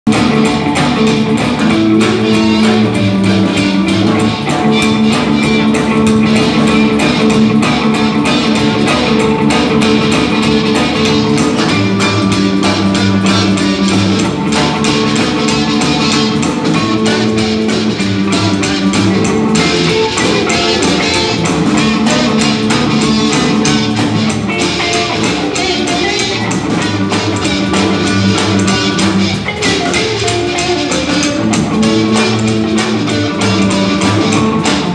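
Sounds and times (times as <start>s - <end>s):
live blues band playing: 0.1s - 34.9s
harmonica: 0.7s - 34.6s.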